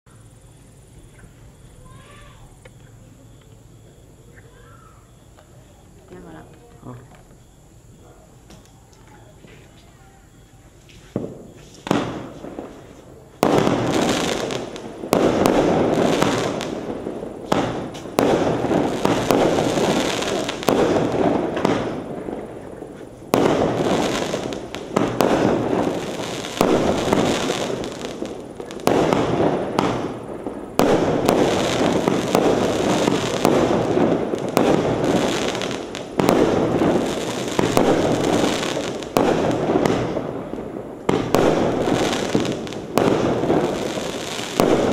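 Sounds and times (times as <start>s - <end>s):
firework crackling: 0.1s - 44.9s
small firework pops: 1.1s - 4.7s, 8.4s - 44.9s
firework launch and burst: 11.1s - 44.9s.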